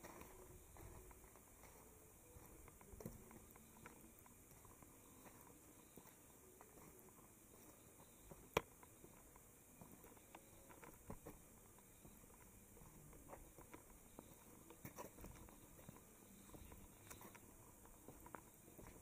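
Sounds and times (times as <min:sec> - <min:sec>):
faint taps and clicks: 0:08.3 - 0:09.5.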